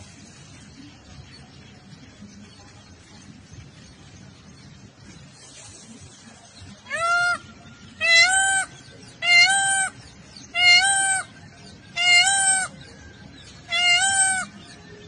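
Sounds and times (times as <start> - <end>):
peacock calling: 6.8 - 14.9.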